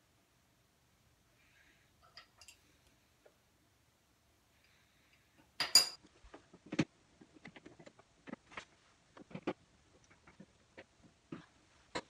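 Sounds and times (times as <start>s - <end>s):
metal tool clinking: 2.0s - 2.7s, 5.6s - 6.0s.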